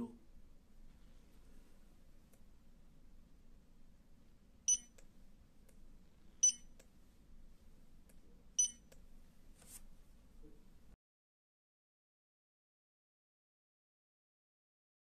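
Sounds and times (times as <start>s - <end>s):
barcode scanner beeping: 4.7s - 5.0s, 6.4s - 6.7s, 8.6s - 8.9s.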